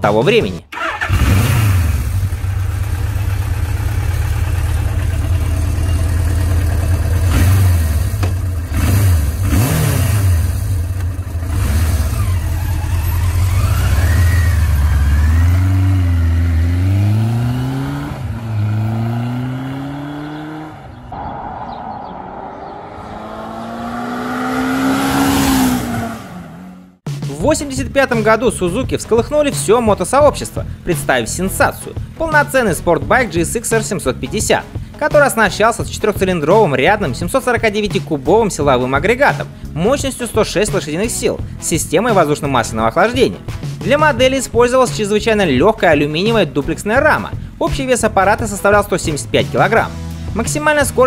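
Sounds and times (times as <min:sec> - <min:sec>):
approaching motorcycle engine: 0:00.8 - 0:27.0
motorcycle engine revving: 0:00.8 - 0:27.1.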